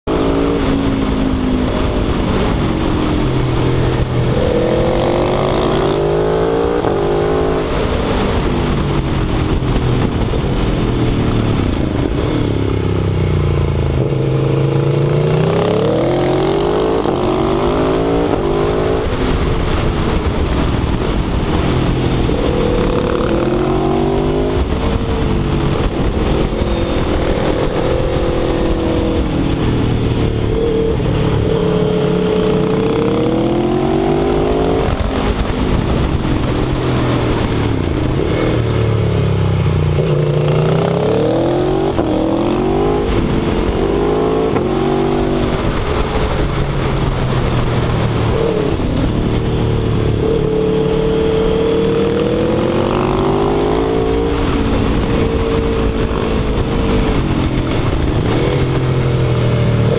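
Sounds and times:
motorcycle engine revving: 0.0s - 59.9s
wind rush on microphone: 0.0s - 59.9s.

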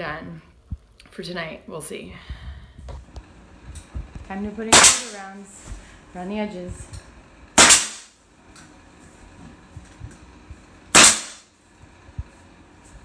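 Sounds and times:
nail gun firing: 4.7s - 5.2s, 7.6s - 8.2s, 11.0s - 11.5s.

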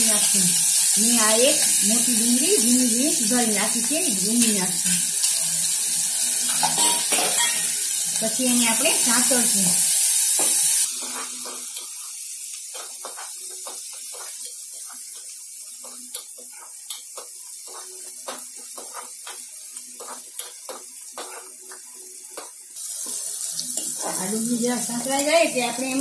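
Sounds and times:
onion sizzling in hot oil: 0.0s - 26.0s
metal spoon scraping a pan: 9.9s - 24.2s.

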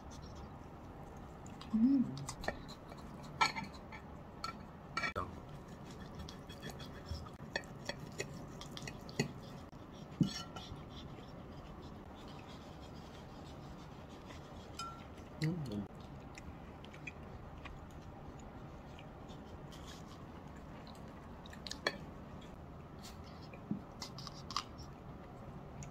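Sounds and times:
fork clinking on porcelain plates: 3.4s - 5.2s, 14.8s - 15.1s.

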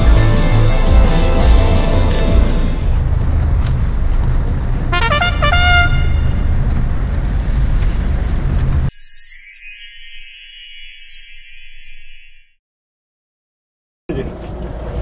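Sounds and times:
music: 0.0s - 3.0s, 8.9s - 12.6s
wind: 2.9s - 12.3s, 14.1s - 15.0s
chime of stepped notes: 8.9s - 12.6s
thin high jingle: 8.9s - 12.6s.

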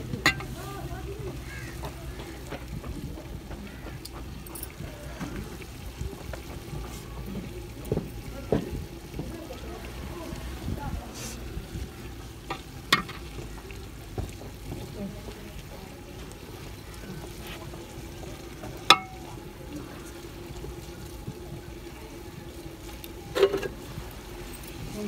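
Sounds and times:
faint sizzle: 0.0s - 25.0s
metal dishes clanking on pot: 0.1s - 0.6s, 12.5s - 13.4s, 18.7s - 19.4s, 23.3s - 23.9s.

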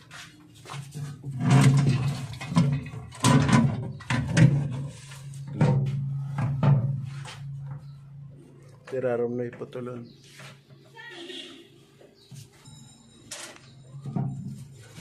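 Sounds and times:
hard parts knocking and rattling: 0.7s - 8.0s.

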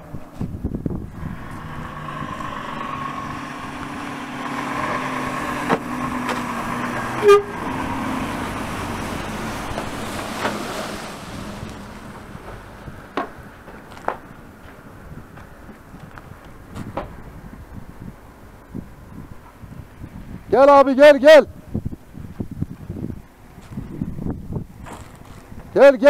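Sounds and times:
truck engine passing by: 0.8s - 17.7s
truck horn toot: 7.0s - 8.0s.

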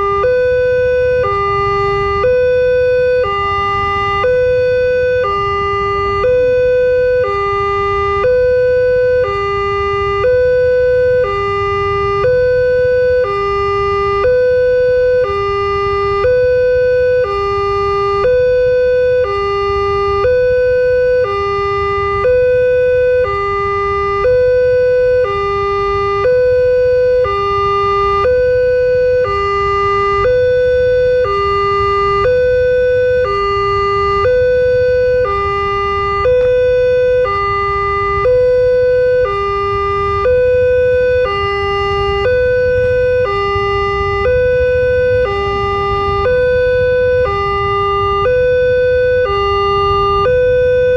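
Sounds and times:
level crossing two-tone alarm: 0.0s - 50.9s.

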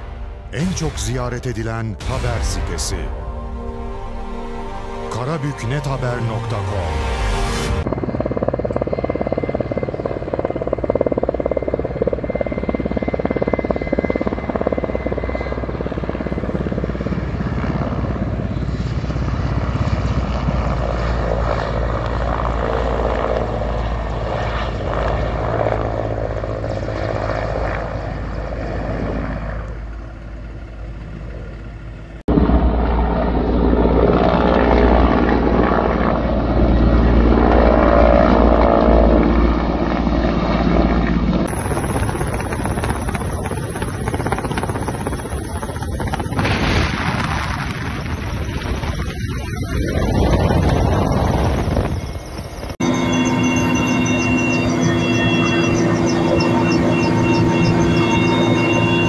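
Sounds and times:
helicopter rotor and engine drone: 0.0s - 59.0s.

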